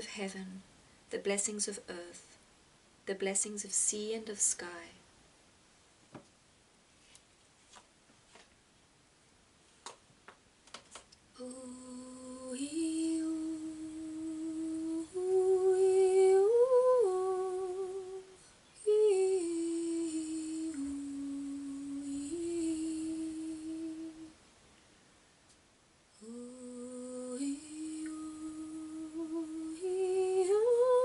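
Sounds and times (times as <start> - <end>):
person humming a tune: 11.4 - 24.3, 26.2 - 31.0.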